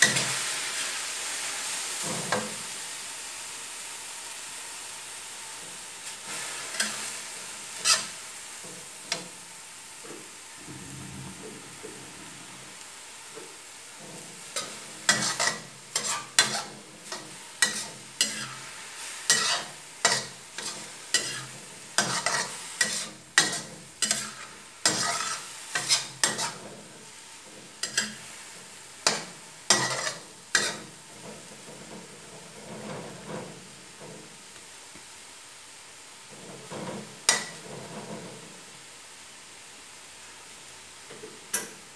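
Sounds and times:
frying sizzle: 0.0s - 41.9s
metal spatula scraping a wok: 6.1s - 9.3s, 14.0s - 33.8s, 36.3s - 38.4s.

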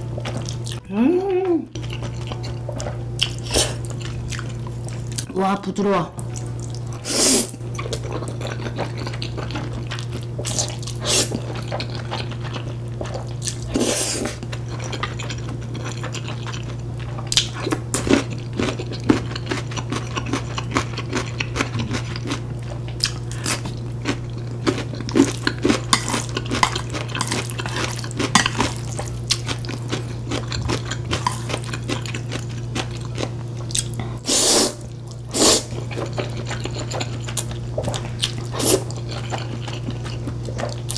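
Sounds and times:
low hum: 0.0s - 17.9s
chewing: 0.2s - 5.3s, 7.7s - 34.2s, 34.8s - 40.9s.

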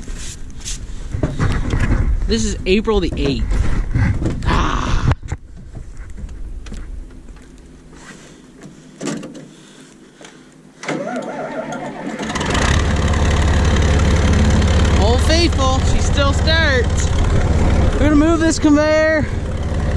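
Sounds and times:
tractor engine starting and running: 10.8s - 19.9s.

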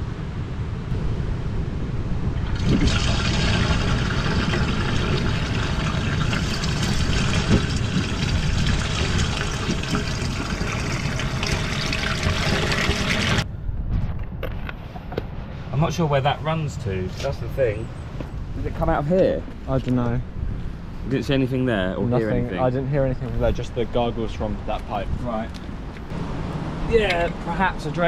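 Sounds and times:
water gurgling through waste pipe: 2.4s - 13.4s.

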